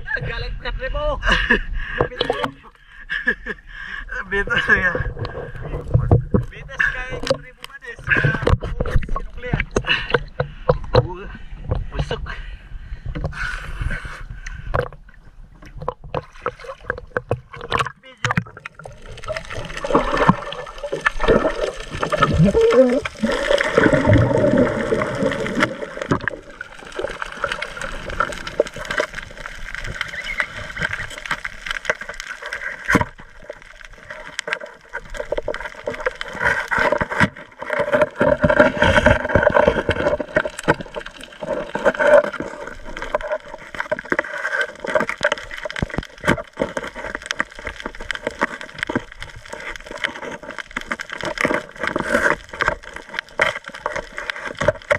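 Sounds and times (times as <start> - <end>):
muffled underwater bubbling: 15.5 - 54.9.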